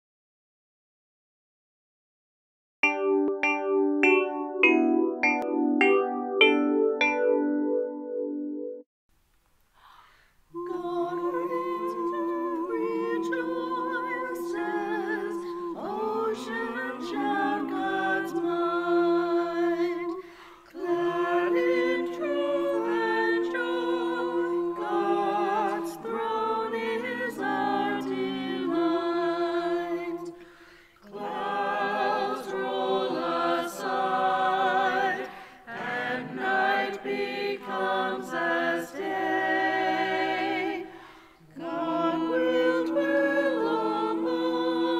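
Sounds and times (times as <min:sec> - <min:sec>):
choir singing: 0:10.6 - 0:44.9.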